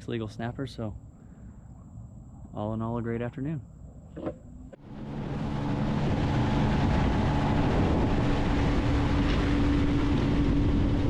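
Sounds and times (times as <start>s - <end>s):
wind: 0.0s - 11.0s
outboard motor running: 4.2s - 11.0s.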